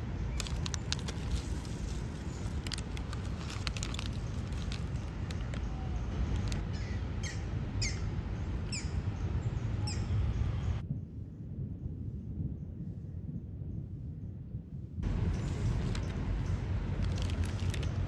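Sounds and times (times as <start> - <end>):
low background rumble: 0.0 - 18.0
sharp clicks and crackles: 0.3 - 6.7, 16.9 - 18.0
bird chirping: 5.0 - 10.8.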